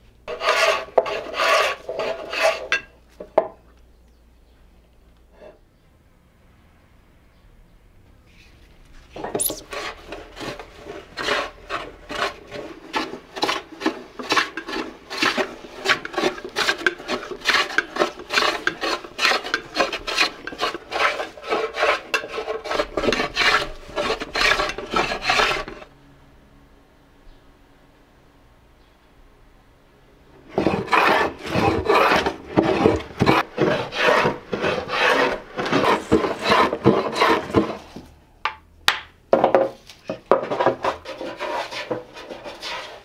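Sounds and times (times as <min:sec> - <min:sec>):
hand tool rasping wood: 0:00.3 - 0:02.9, 0:09.4 - 0:25.9, 0:30.5 - 0:38.0, 0:40.2 - 0:43.0.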